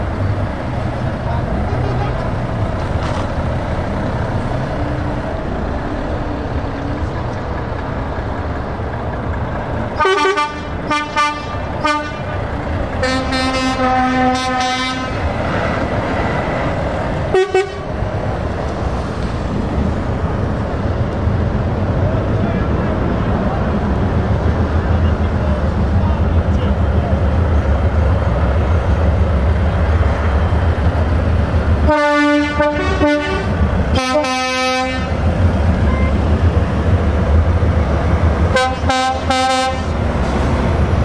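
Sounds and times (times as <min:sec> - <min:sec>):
heavy truck engines: 0:00.0 - 0:41.0
truck horn: 0:01.6 - 0:02.2, 0:10.0 - 0:12.4, 0:13.0 - 0:15.3, 0:17.3 - 0:17.9, 0:31.9 - 0:35.2, 0:35.9 - 0:36.2, 0:38.5 - 0:40.0.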